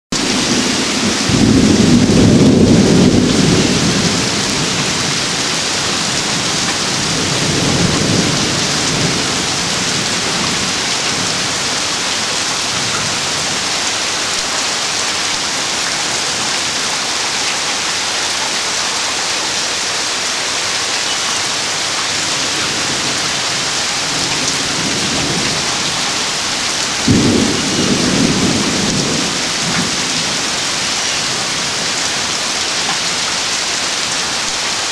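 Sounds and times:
thunderclap: 0:00.1 - 0:14.5, 0:22.3 - 0:32.0
thunder rumbling: 0:00.1 - 0:17.4, 0:21.6 - 0:33.3
steady rain: 0:00.1 - 0:34.9.

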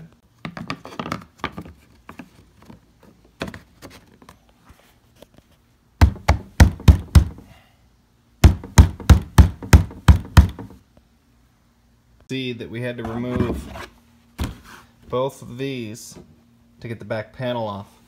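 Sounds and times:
sharp plastic knocks: 0:06.0 - 0:07.4, 0:08.4 - 0:10.8.

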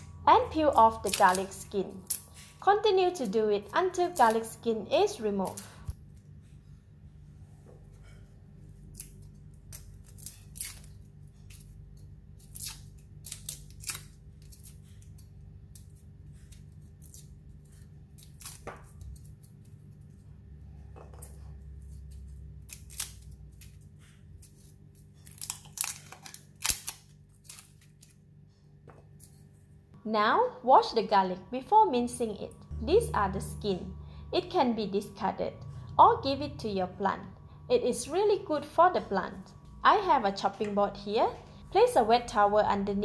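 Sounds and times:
faint low hum: 0:00.0 - 0:43.0
garlic skins crackling: 0:00.2 - 0:06.2, 0:08.7 - 0:20.3, 0:21.6 - 0:28.3.

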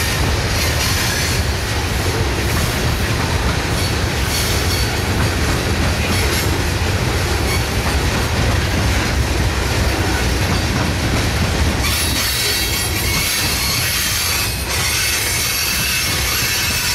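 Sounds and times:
freight train rumbling: 0:00.0 - 0:16.9.

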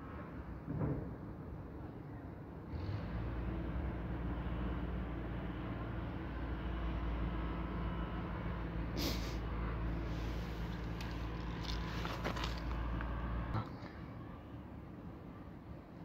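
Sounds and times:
low motor hum: 0:02.8 - 0:15.4
short rustle: 0:10.0 - 0:13.0.

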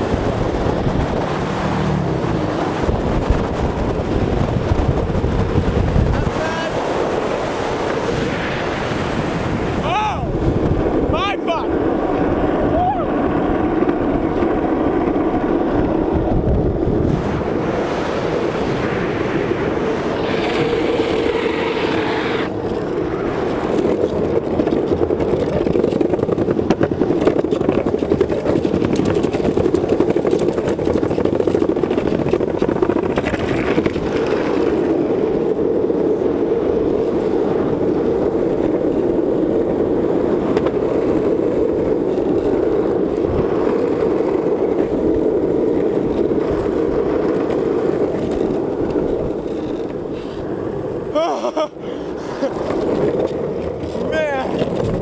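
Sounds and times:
skateboard wheels rolling on asphalt: 0:00.0 - 0:55.0.

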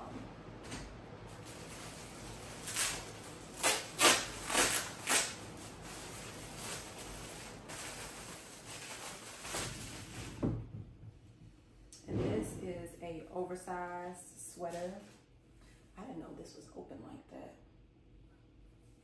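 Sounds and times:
plastic bag crinkling: 0:01.4 - 0:10.4.

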